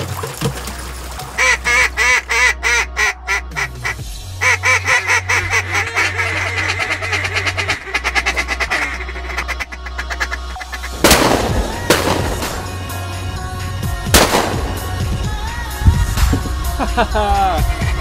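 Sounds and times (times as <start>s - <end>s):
duck call quacks: 1.4s - 11.0s.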